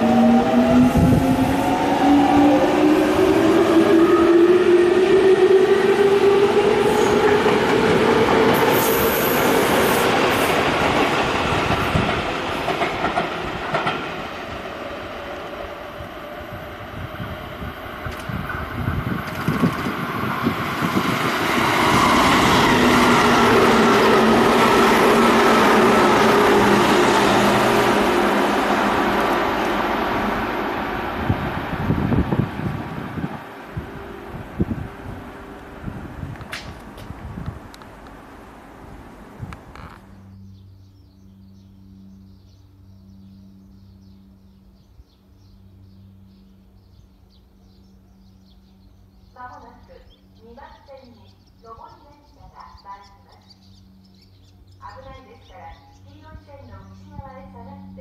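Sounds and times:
train wheels rushing on rail: 0.0 - 38.2
small birds chirping: 39.9 - 58.0.

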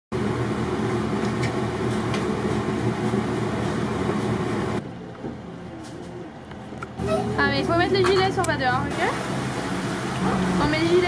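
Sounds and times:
low mechanical hum: 0.2 - 11.0.

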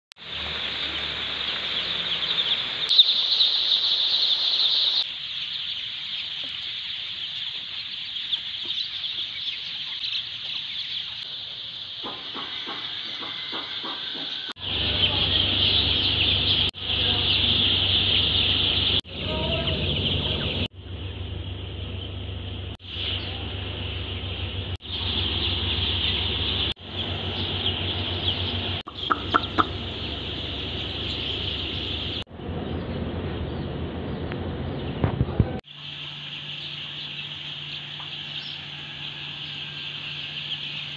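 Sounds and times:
chicks peeping: 0.2 - 21.3, 22.9 - 40.9
low steady hum: 14.6 - 40.9.

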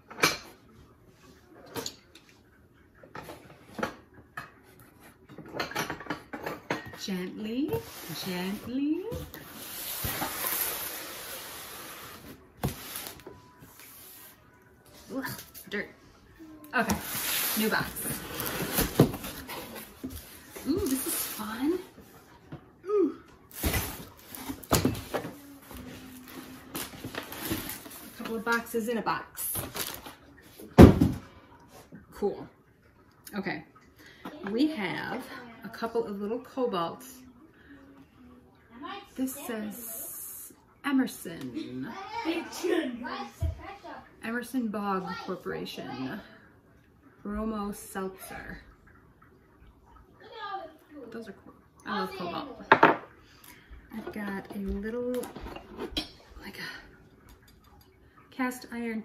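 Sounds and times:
wrapping rustling: 17.0 - 21.4, 23.5 - 28.2, 29.6 - 30.2.

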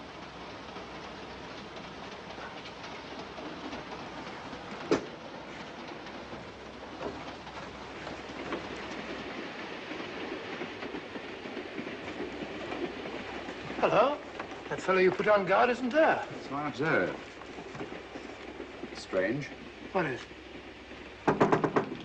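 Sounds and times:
train rumble on rails: 0.0 - 22.0
wheels clicking over rail joints: 0.0 - 22.0.

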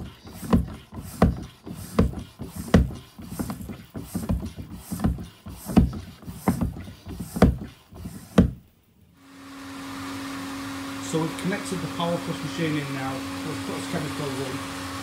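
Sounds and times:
foot pump strokes: 0.0 - 8.7.

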